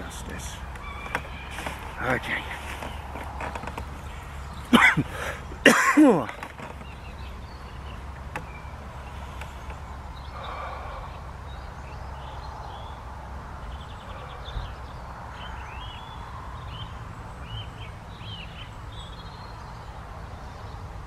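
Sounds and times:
small bird chirping: 0.0 - 13.0
low outdoor rumble: 0.0 - 21.0.

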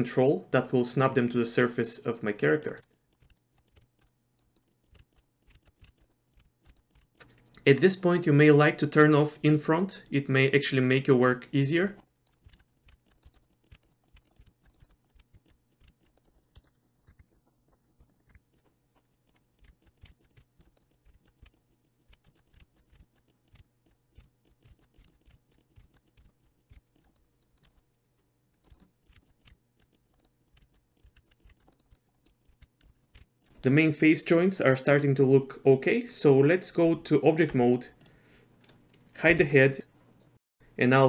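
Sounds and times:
keyboard and mouse clicking: 2.5 - 7.8, 11.8 - 33.7.

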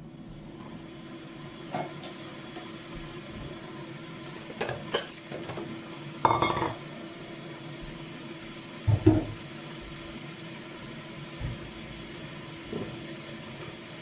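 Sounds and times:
steady appliance hum: 0.0 - 14.0
dishes and cutlery clinking: 6.3 - 6.8.

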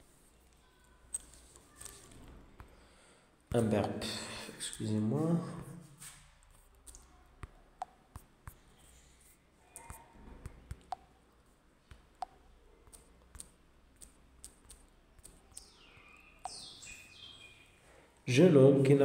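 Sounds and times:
fingers tapping touchscreen: 6.5 - 9.0, 9.7 - 16.8.

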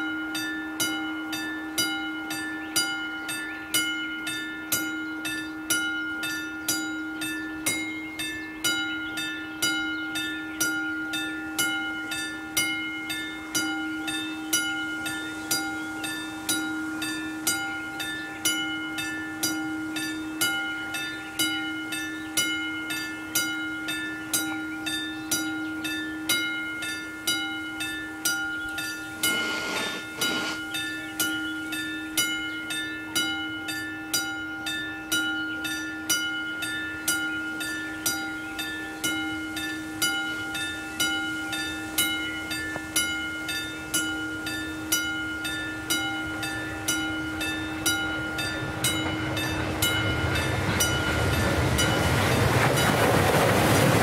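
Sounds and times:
level crossing warning bell: 0.0 - 54.0
brief rush of noise: 29.2 - 30.7.

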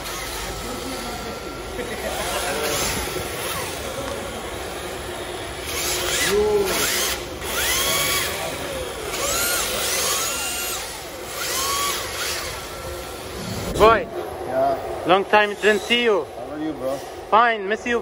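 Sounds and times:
electric toy car motors whining: 0.0 - 13.9.

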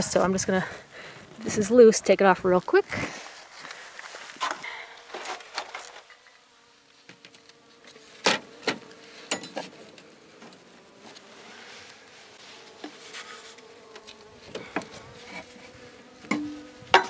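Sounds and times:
honeybees humming: 0.0 - 17.0
wooden hive parts knocking: 16.2 - 17.0.

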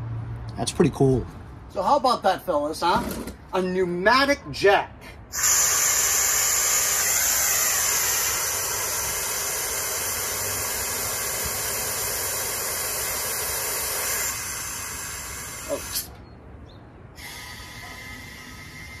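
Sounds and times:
compressed air hissing: 5.3 - 16.2, 17.1 - 19.0.

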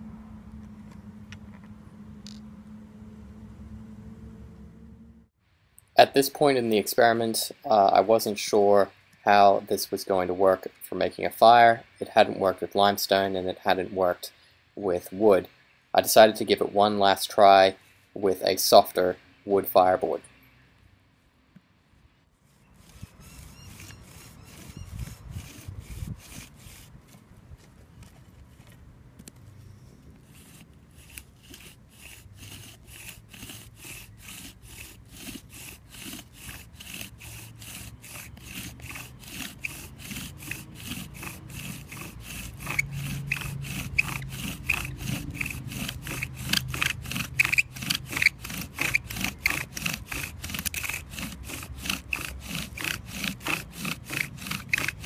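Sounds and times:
bow drill strokes grinding: 22.4 - 27.2, 30.2 - 55.0
high squeak: 22.6 - 26.0, 36.0 - 55.0.

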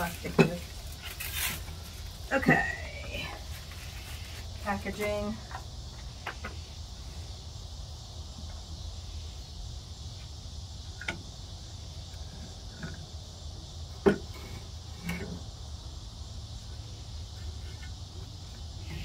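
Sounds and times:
crickets chirping: 0.0 - 19.0.

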